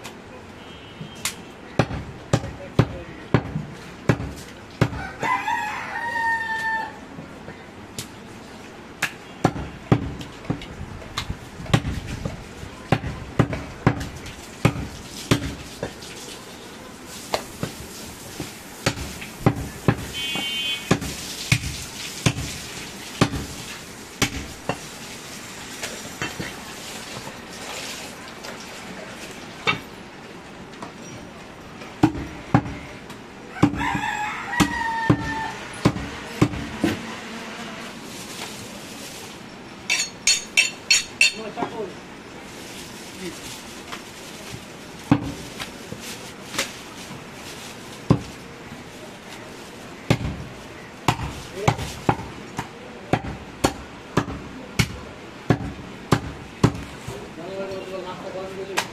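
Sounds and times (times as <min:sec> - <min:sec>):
knife chopping meat and bone: 0:01.8 - 0:05.1, 0:11.2 - 0:15.6, 0:18.4 - 0:20.1, 0:20.9 - 0:22.6, 0:23.2 - 0:23.6, 0:24.2 - 0:24.9, 0:33.6 - 0:37.0, 0:50.1 - 0:50.4, 0:51.0 - 0:57.1.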